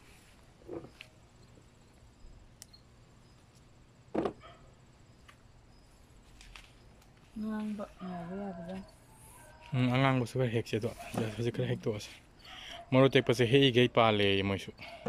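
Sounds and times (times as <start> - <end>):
plant leaves rustling: 6.1 - 8.1.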